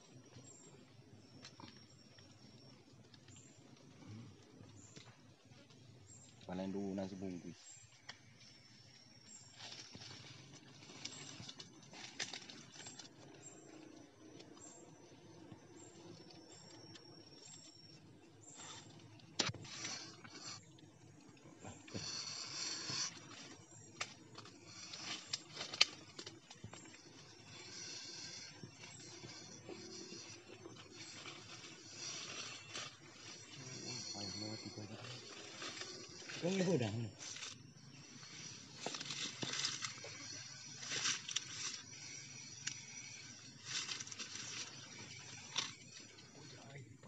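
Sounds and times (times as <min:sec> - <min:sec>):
high insect drone: 0:00.0 - 0:47.0
rustling hiss: 0:18.4 - 0:46.9.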